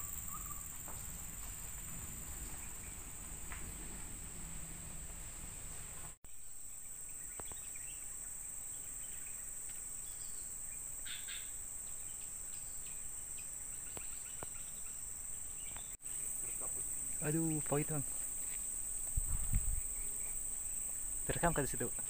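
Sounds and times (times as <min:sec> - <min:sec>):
faint bird chirps: 0:00.0 - 0:01.6, 0:06.3 - 0:18.6
insect chorus drone: 0:00.0 - 0:22.0.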